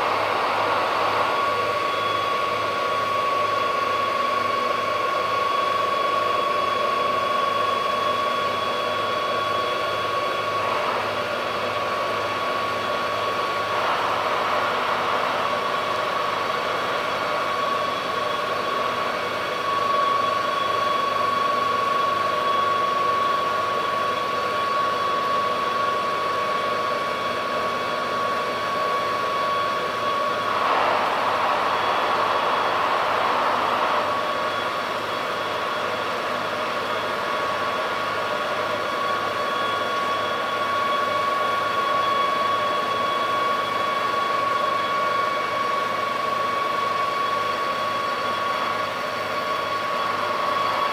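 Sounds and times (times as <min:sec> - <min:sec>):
ship machinery drone: 0:00.0 - 0:04.0, 0:10.1 - 0:21.6, 0:28.3 - 0:37.4.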